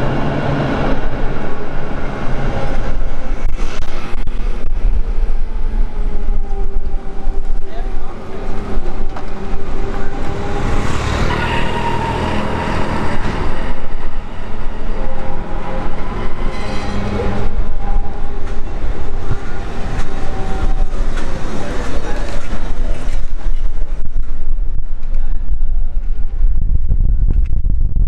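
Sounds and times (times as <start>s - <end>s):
city traffic: 0.0s - 26.2s
tram humming and whining: 0.0s - 26.7s
passers-by chattering: 17.0s - 24.1s.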